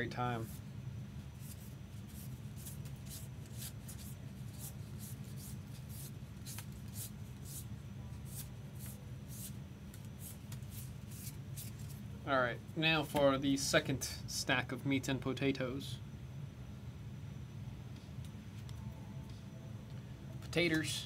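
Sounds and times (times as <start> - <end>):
cards sliding swishes: 1.4 - 12.0.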